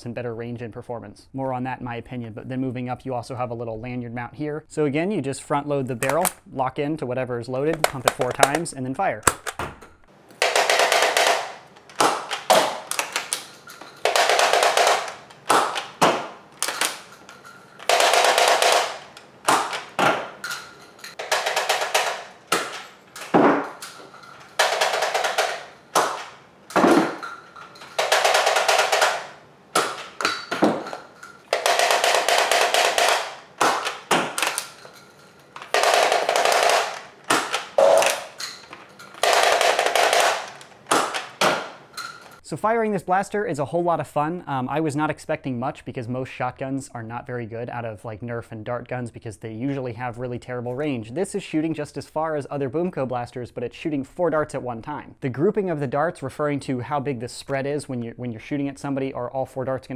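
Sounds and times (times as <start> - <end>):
plastic pump clacks: 7.7 - 10.0.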